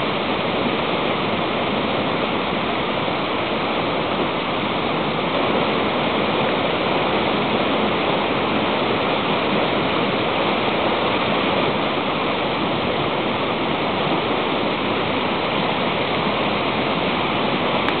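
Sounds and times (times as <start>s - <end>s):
river rushing over rocks: 0.0s - 18.0s.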